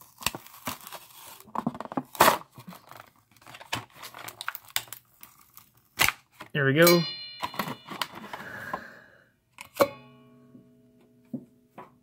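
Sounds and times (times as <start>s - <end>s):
plastic packaging tearing: 0.0s - 6.5s.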